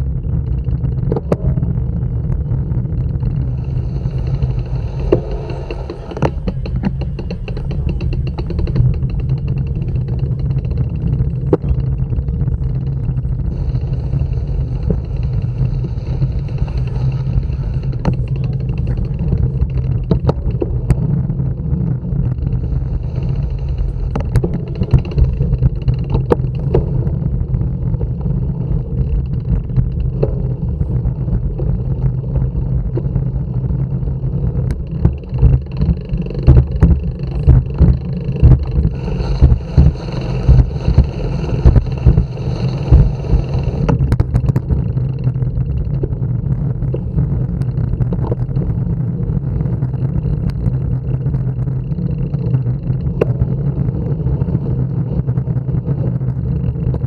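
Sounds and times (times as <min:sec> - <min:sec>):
wind rumble on microphone: 0:00.0 - 0:57.0
clicks and knocks: 0:05.0 - 0:12.4.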